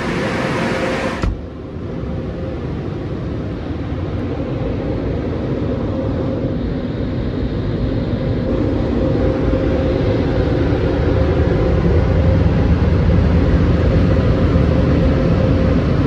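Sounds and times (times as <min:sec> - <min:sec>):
faint steady hum: 0:00.0 - 0:16.0
muffled car wash machinery roar: 0:00.0 - 0:16.0.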